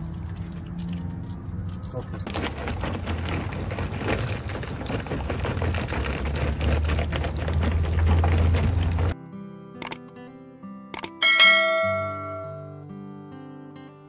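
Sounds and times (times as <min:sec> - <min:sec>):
charcoal briquettes clattering: 0:00.0 - 0:09.2
fish deep-frying in oil: 0:00.0 - 0:09.2.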